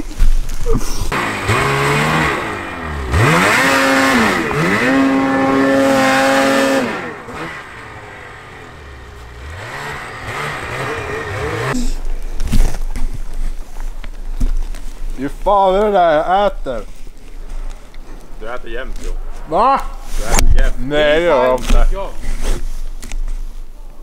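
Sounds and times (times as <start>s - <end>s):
snowmobile engine revving: 1.1s - 12.0s.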